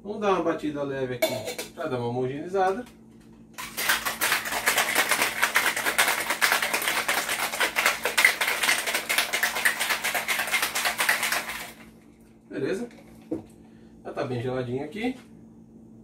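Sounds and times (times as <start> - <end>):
ice rattling in cocktail shaker: 3.6 - 11.9.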